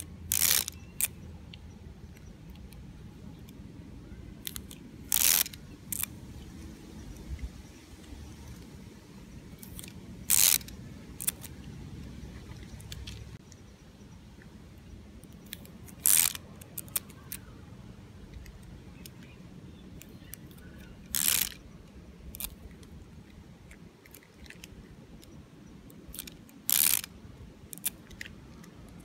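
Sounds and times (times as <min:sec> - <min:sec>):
tape dispenser gears pecking: 0:00.3 - 0:01.1, 0:04.4 - 0:06.1, 0:09.6 - 0:11.5, 0:15.5 - 0:17.1, 0:21.1 - 0:21.6, 0:26.1 - 0:27.1.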